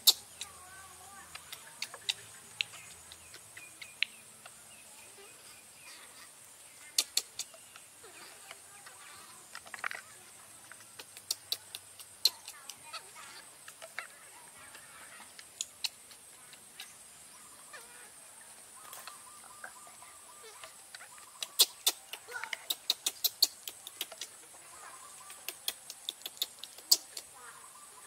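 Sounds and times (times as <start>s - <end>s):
baby monkey calls: 0.0s - 4.1s, 10.6s - 18.1s, 18.8s - 28.0s
high insect buzz: 0.0s - 28.0s.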